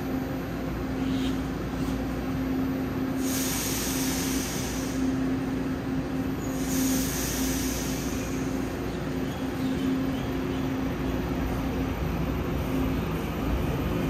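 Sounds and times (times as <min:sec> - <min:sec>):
electric train humming: 0:00.0 - 0:14.0
air hiss: 0:03.2 - 0:05.2, 0:06.4 - 0:08.7.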